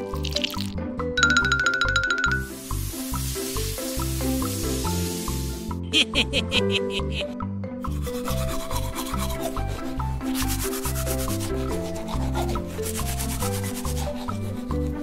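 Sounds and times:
toothbrush scrubbing teeth: 0:00.0 - 0:00.7, 0:07.9 - 0:15.0
background music with bass: 0:00.1 - 0:15.0.

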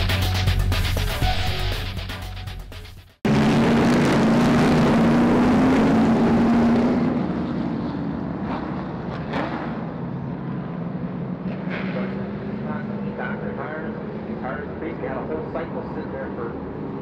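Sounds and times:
music: 0:00.0 - 0:03.2
race car engines roaring: 0:03.3 - 0:17.0.

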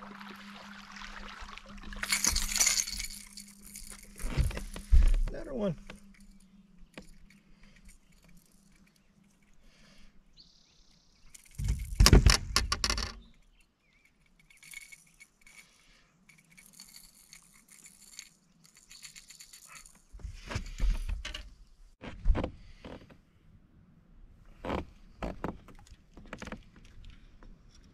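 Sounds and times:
rustling and scraping: 0:02.1 - 0:09.6.

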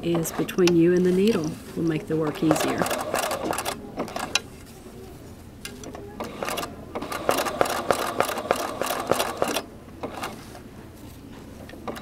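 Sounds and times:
sewing machine stitching: 0:02.2 - 0:04.4, 0:06.2 - 0:10.4.

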